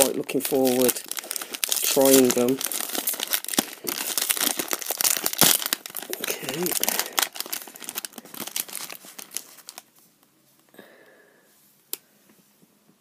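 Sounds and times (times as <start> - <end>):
foil packet crinkling: 0.0 - 10.0.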